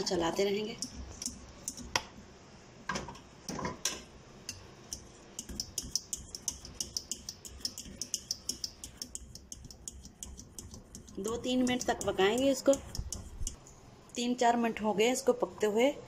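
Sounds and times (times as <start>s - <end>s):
whisk clicking in metal pot: 4.5s - 13.6s.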